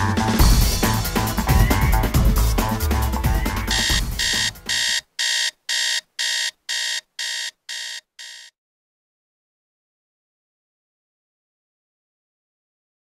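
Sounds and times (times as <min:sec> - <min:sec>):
music with drum beat: 0:00.0 - 0:04.9
alarm clock beeping: 0:01.5 - 0:02.0, 0:03.4 - 0:08.5.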